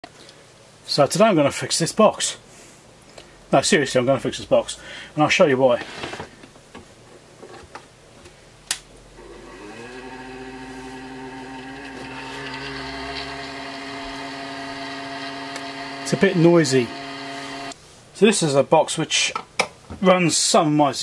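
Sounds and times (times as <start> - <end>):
cooling fan whirring: 8.7 - 17.8.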